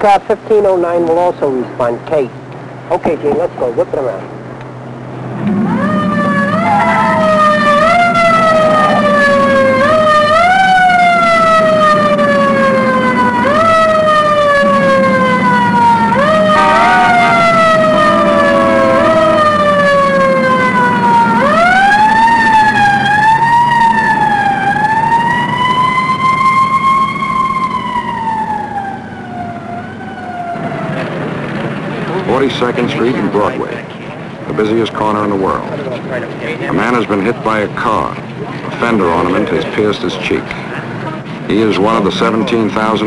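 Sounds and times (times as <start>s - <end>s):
police siren wailing: 5.4s - 33.6s.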